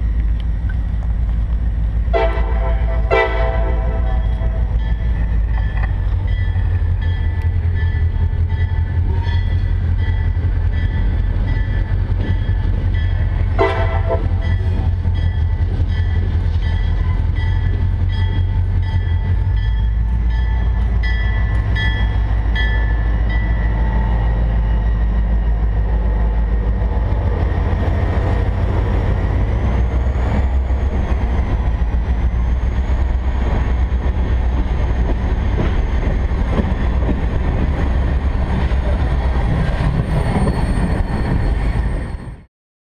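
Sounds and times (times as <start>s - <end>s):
locomotive engine rumbling: 0.0s - 42.4s
locomotive horn blast: 2.1s - 4.8s, 13.5s - 14.6s
locomotive bell ringing: 3.0s - 24.8s.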